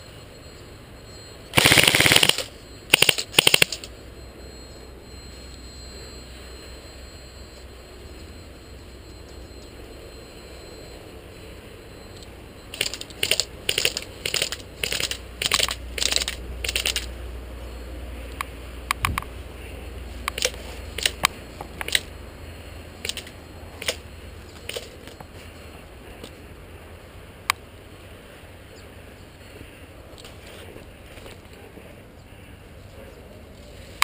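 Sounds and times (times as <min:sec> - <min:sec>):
rifle and gear clicking: 0:01.6 - 0:03.9, 0:12.7 - 0:17.1, 0:20.3 - 0:21.2.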